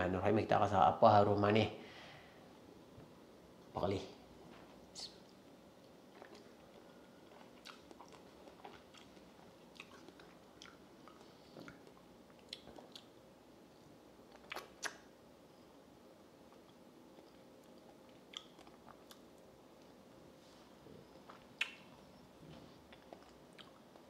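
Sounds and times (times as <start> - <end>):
man chewing with wet smacks: 5.2 - 15.2, 16.4 - 20.0, 21.0 - 24.0.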